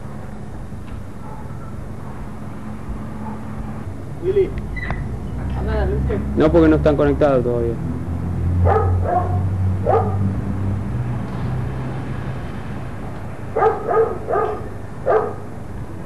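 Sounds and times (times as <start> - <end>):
dog barking: 1.2 - 1.8, 3.2 - 3.5, 8.6 - 10.3, 13.6 - 15.5.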